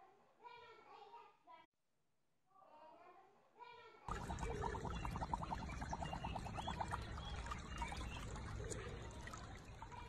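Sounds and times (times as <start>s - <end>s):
shallow water trickling and gurgling: 4.1s - 10.0s.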